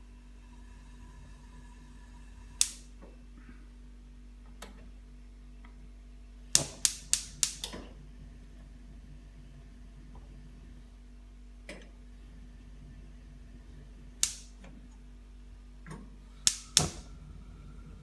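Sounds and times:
gas burner igniter clicking: 2.6 - 2.9, 6.5 - 7.9, 14.2 - 14.6, 16.4 - 17.1.

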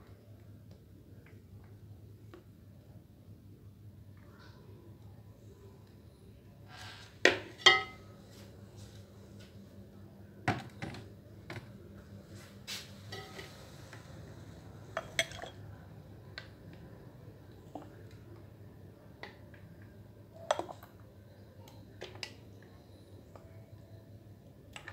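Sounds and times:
spoon and glasses clinking on pot: 7.3 - 8.0, 13.1 - 13.6, 15.0 - 15.6.

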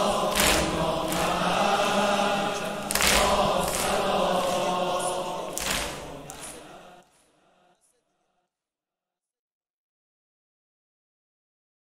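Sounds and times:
crowd chanting in unison: 0.0 - 8.4.

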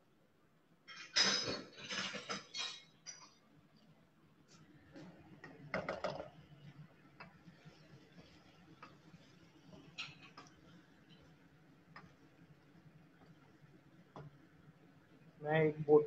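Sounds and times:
utensils clinking against cookware: 0.9 - 3.4.

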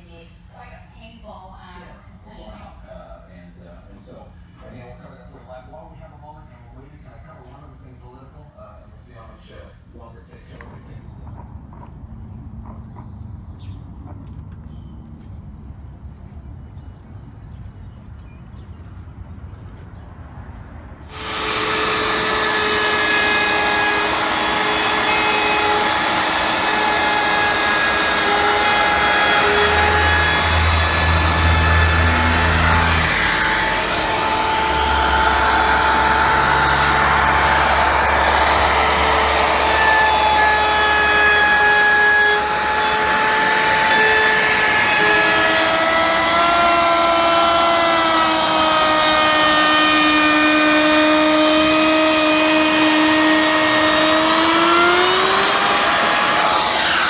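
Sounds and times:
shop vacuum running: 21.1 - 57.0
wood router high whine: 21.1 - 57.0.

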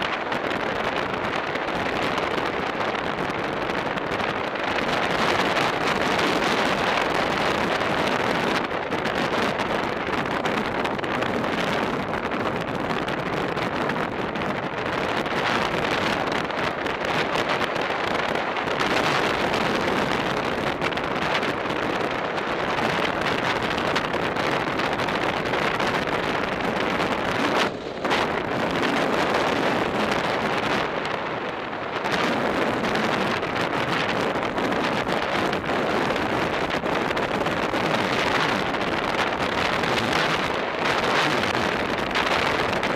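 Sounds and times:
wind rushing over microphone: 0.0 - 42.9.

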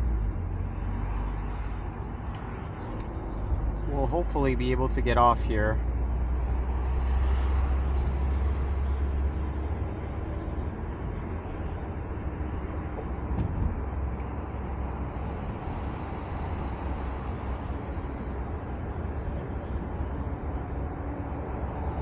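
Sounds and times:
car engine drone inside cabin: 0.0 - 22.0
tyre and wind noise: 9.8 - 16.7.

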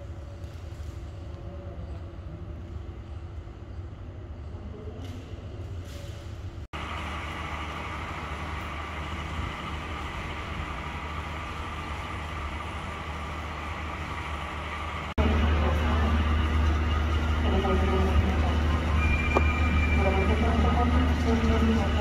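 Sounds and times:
train rumble and hiss: 5.1 - 22.0.

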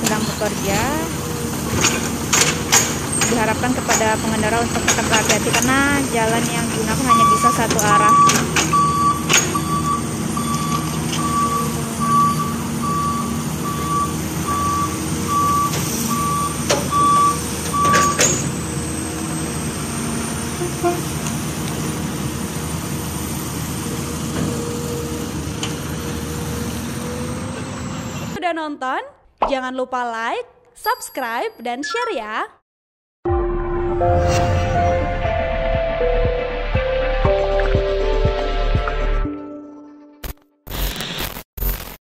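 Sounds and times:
truck engine running: 0.0 - 28.4
reversing alarm beeping: 5.9 - 18.5, 20.6 - 21.2.

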